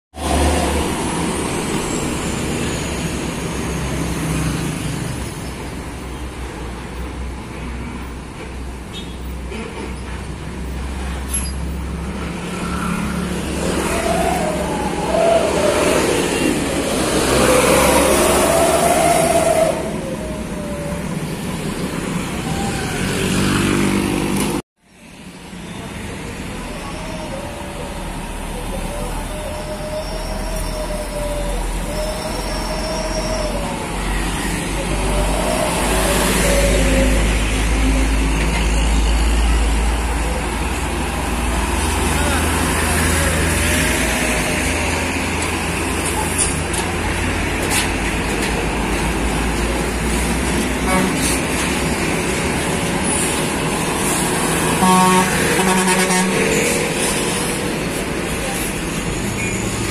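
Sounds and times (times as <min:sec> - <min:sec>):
trucks and motorcycles passing: 0:00.2 - 0:59.9
motorcycles passing: 0:12.1 - 0:24.6.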